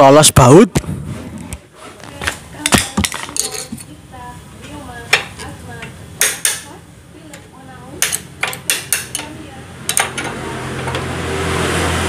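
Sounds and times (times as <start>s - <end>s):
metal clinking and scraping: 2.7s - 4.0s
sharp knocks on metal: 6.2s - 6.7s.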